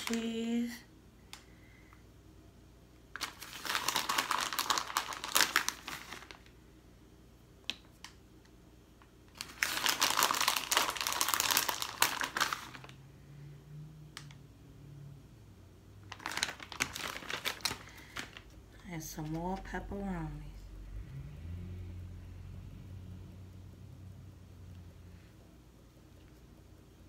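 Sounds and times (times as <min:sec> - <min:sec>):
plastic bag crinkling: 0:03.1 - 0:06.6, 0:09.3 - 0:13.0, 0:16.0 - 0:19.8.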